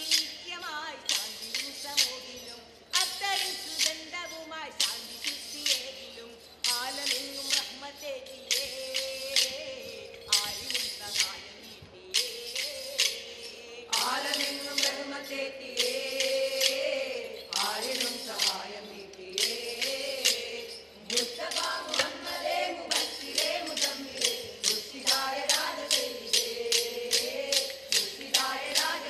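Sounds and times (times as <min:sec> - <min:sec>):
wooden sticks clacking in rhythm: 0:00.0 - 0:29.0
group singing: 0:12.1 - 0:29.0.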